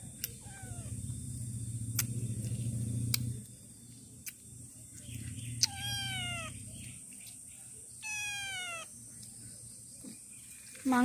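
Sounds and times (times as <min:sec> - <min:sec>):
low steady hum: 0:00.0 - 0:11.0
cat meowing: 0:00.3 - 0:01.0, 0:05.6 - 0:06.6, 0:08.0 - 0:08.9.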